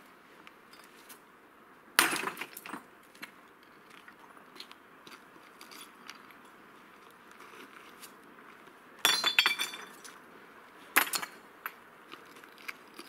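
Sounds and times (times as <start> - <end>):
stones clattering on stone heap: 9.0 - 10.0.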